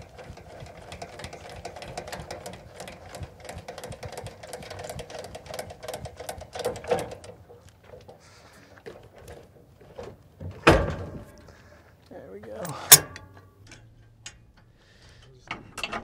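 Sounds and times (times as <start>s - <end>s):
trailer jack clicking and whirring: 0.0s - 8.2s, 12.6s - 16.0s.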